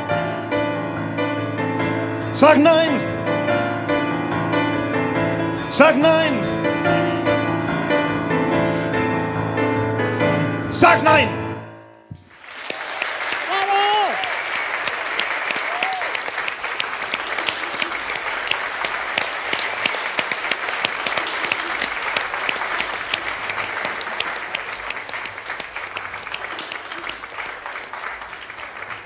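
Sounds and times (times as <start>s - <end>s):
audience applauding: 12.2s - 29.0s.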